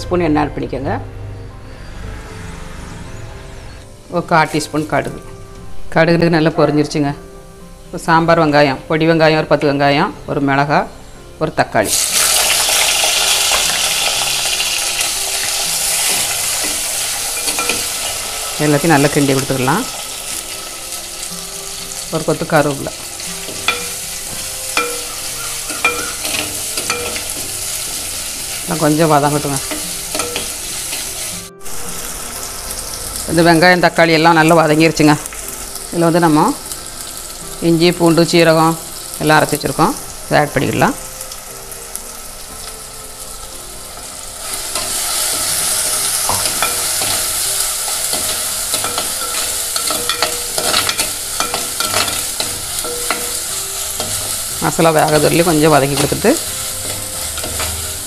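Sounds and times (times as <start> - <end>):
vegetables sizzling in hot oil: 11.8 - 58.0
spoon stirring: 44.8 - 54.4.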